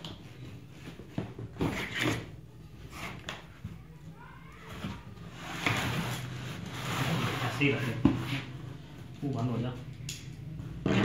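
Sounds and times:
cardboard box rustling and scraping: 5.3 - 8.6.

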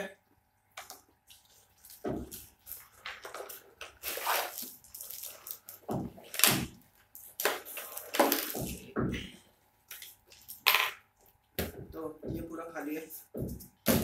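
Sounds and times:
rustling of cardboard and plastic: 0.9 - 9.0.

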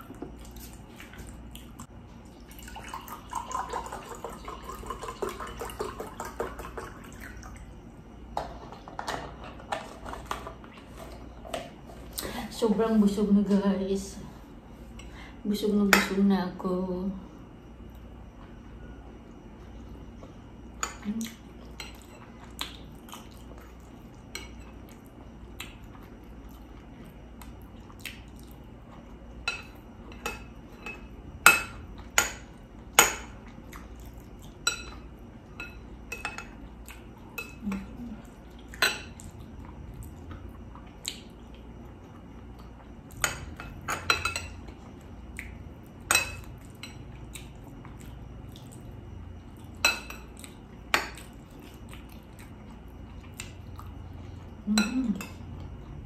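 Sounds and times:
cutlery clinking against a dish: 43.2 - 44.6.

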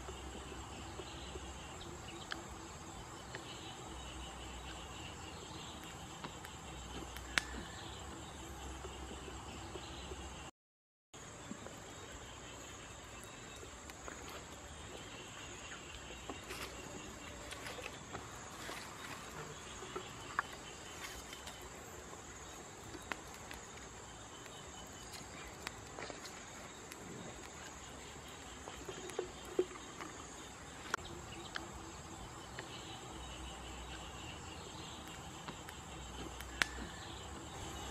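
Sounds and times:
insects chorus: 0.0 - 10.5, 11.2 - 37.9
sharp clicks and crackles: 22.8 - 31.7, 34.8 - 37.2.

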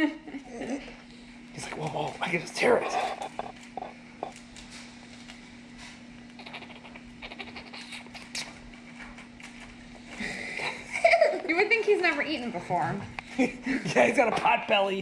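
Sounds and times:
squirrel gnawing dry seed pod: 1.6 - 5.5, 6.1 - 9.8.

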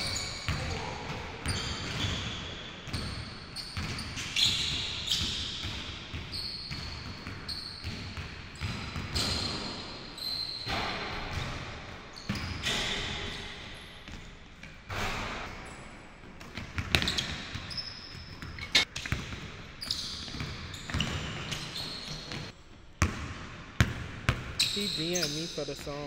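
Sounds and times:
shoe squeaks: 0.0 - 0.8, 1.4 - 5.6, 6.2 - 8.0, 8.6 - 11.5, 12.1 - 14.1, 16.9 - 19.1, 19.8 - 22.5, 24.6 - 26.0
basketball bouncing on wooden floor: 16.3 - 25.2.

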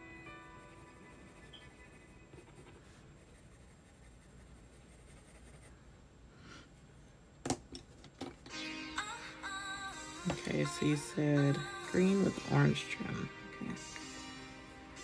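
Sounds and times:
pen scratching on paper: 0.8 - 5.7.

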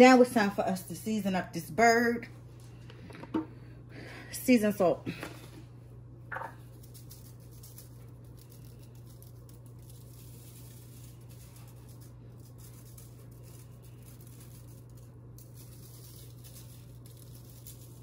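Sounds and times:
steady low hum: 0.0 - 18.0
salt pattering from shaker: 6.6 - 18.0.

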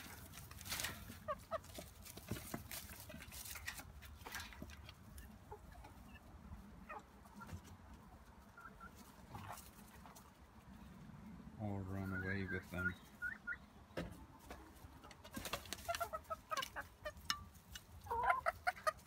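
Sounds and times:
rustling in dry straw: 0.0 - 5.4
hens clucking softly: 0.0 - 19.0.

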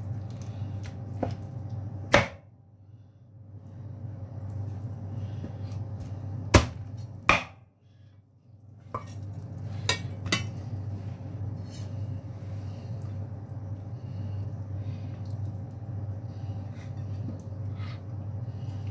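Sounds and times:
steady low hum: 0.0 - 18.9
knife chopping on cutting board: 2.1 - 2.4, 6.5 - 7.6.

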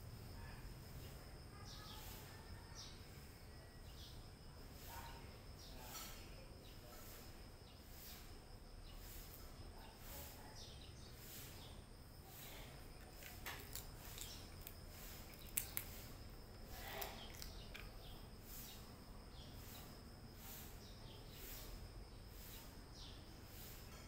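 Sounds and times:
cat chewing: 13.1 - 16.2, 16.8 - 18.0.

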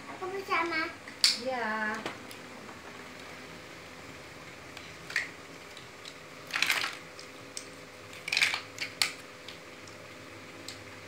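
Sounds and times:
plastic bricks clicking together: 6.0 - 7.0, 7.6 - 9.2
plastic bricks clattering: 6.5 - 7.0, 8.1 - 9.2.

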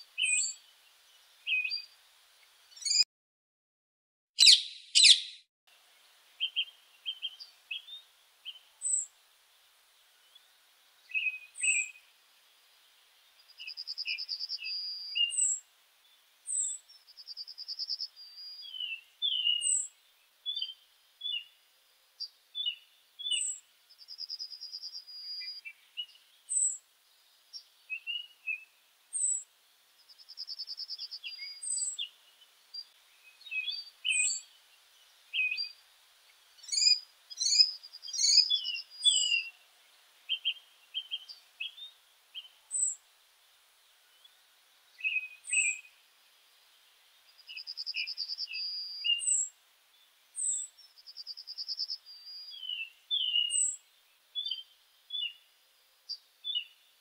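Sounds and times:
bird trill: 0.2 - 0.6, 2.8 - 3.0, 4.4 - 5.4, 13.6 - 15.6, 16.5 - 19.9, 32.8 - 34.5, 36.6 - 39.6, 45.0 - 45.9, 47.4 - 49.5, 50.4 - 53.8
birds chirping and singing: 2.8 - 3.0, 4.4 - 5.4, 13.5 - 15.6, 17.8 - 19.9, 32.8 - 34.5, 36.6 - 39.6, 45.0 - 45.8, 47.4 - 49.5, 51.3 - 53.8.

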